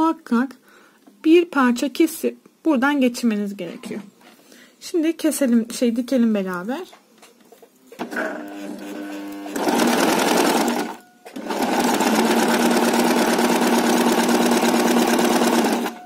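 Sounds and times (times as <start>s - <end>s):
sewing machine stitching: 8.0s - 16.0s.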